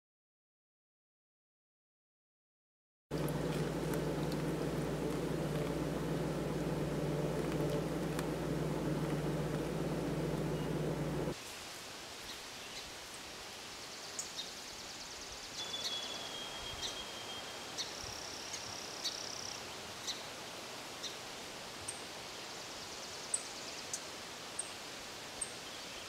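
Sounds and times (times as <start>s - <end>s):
faint outdoor hiss: 3.1s - 26.0s
songbirds chirping and trilling: 3.2s - 11.4s.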